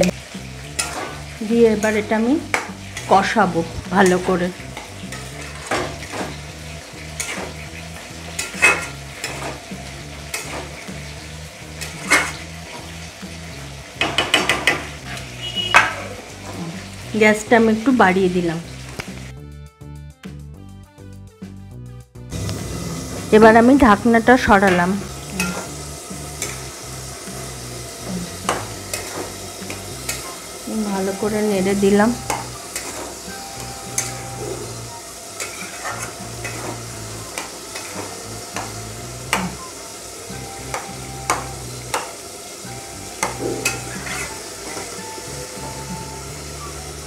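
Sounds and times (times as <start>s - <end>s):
frying sizzle: 0.0s - 19.4s, 22.2s - 47.0s
metal spatula scraping pan: 0.6s - 13.1s, 14.0s - 16.9s, 24.5s - 30.5s, 31.7s - 39.7s, 43.2s - 45.0s
spatula knocking against pan: 14.0s - 14.9s.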